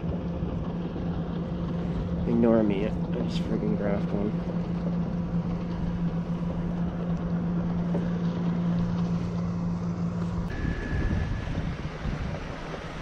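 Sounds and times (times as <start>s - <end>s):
water: 0.0s - 13.0s
wind: 0.0s - 13.0s
short high electronic beep: 10.5s - 11.5s.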